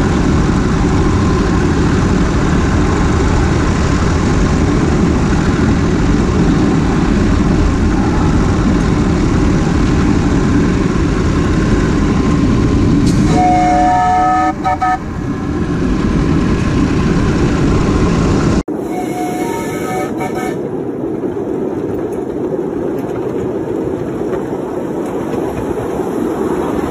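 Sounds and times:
steam locomotive running: 0.0 - 26.9
steam whistle chord: 13.1 - 15.0, 18.8 - 20.6.

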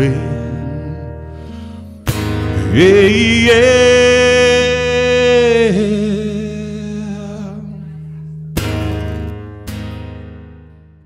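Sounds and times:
man singing: 0.0 - 8.4
acoustic guitar chords: 0.0 - 11.0.

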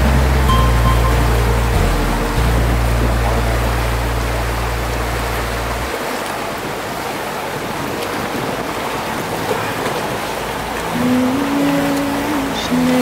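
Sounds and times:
low held music notes: 0.0 - 6.2
boat engine: 0.0 - 13.0
water rushing: 0.0 - 13.0.

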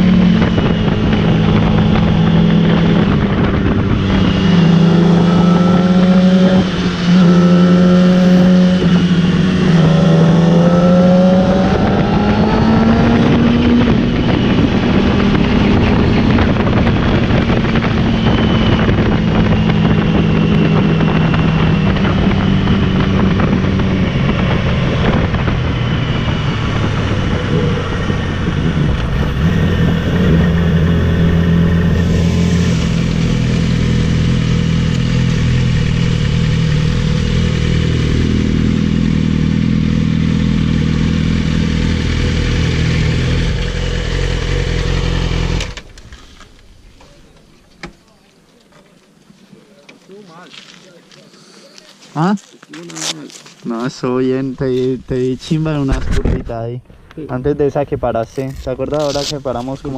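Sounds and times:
rushing wind noise: 0.0 - 47.0, 54.0 - 59.9
motorcycle engine running: 0.0 - 47.6.

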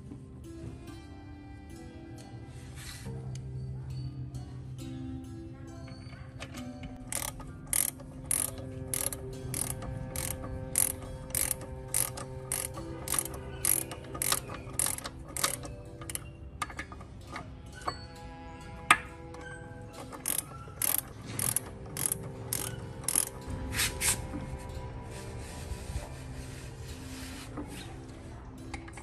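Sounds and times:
ratchet wrench clicking: 7.0 - 18.0, 20.0 - 24.2.

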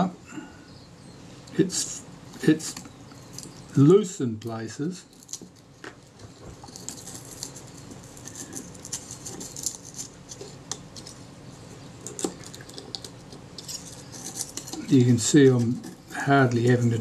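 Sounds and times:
scalpel scraping and ticking: 11.8 - 17.0.

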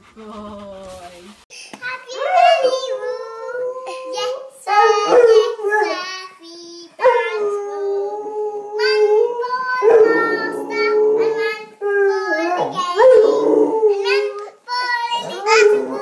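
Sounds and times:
girl singing a lullaby: 1.8 - 16.0
dog howling: 4.7 - 6.0, 7.0 - 14.3, 15.2 - 16.0.

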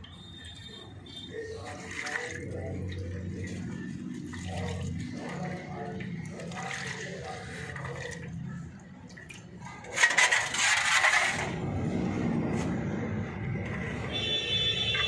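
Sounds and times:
liquid sloshing and splashing: 0.1 - 12.1.

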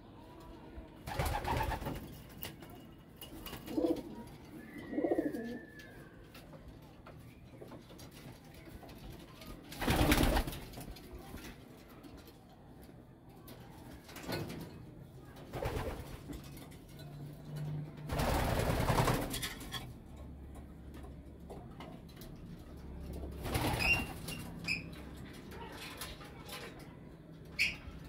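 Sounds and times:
pigeons cooing: 3.7 - 6.0.

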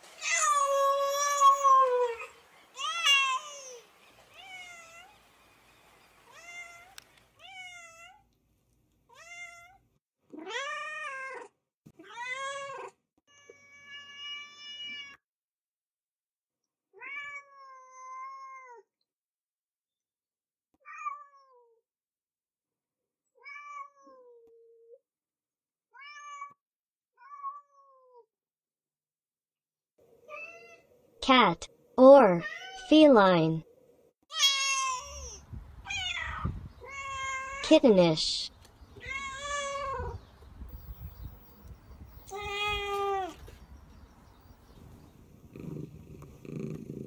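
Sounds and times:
cats meowing: 0.2 - 5.1, 6.3 - 8.2, 9.1 - 15.2, 17.0 - 18.8, 34.3 - 37.6, 39.0 - 40.2, 42.0 - 43.6.

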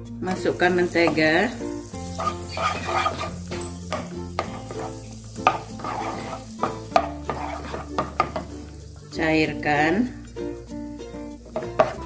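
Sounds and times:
butter sizzling in a wok: 0.2 - 12.0
wooden spatula scraping pan: 0.4 - 9.0, 11.4 - 12.0
spatula knocking against pan: 2.2 - 8.6, 11.6 - 12.0.

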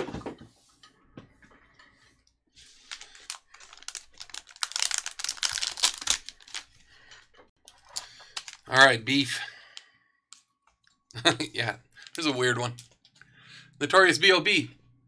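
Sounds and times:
foil card pack crinkling and tearing: 2.8 - 6.7.

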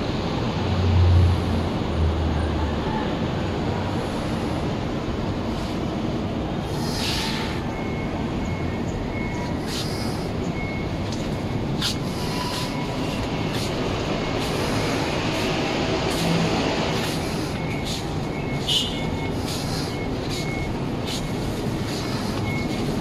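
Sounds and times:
city traffic rumble: 0.0 - 23.0.

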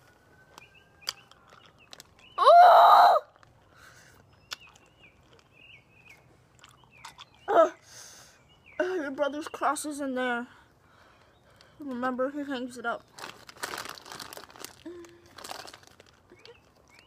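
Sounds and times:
woman's strained cry: 2.4 - 3.3.

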